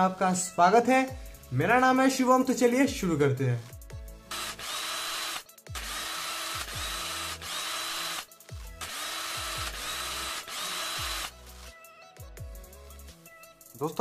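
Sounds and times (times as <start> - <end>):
grinding drill-like machine noise: 4.3 - 11.3.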